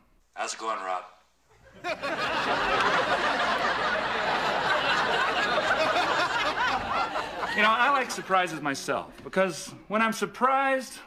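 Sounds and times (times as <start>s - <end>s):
crowd laughing: 1.5s - 8.7s.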